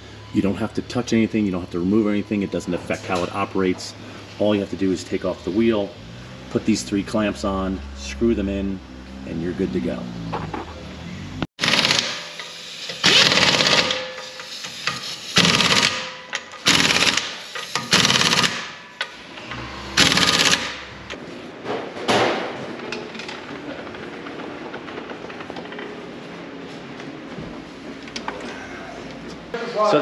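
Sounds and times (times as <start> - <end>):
pneumatic impact wrench rattling: 11.6 - 21.0.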